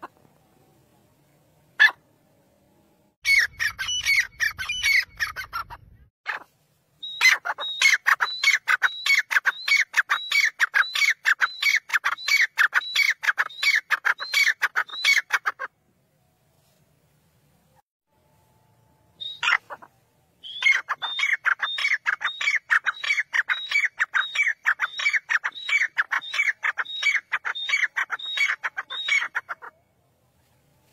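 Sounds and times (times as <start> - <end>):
francolin calling: 19.2 - 29.6.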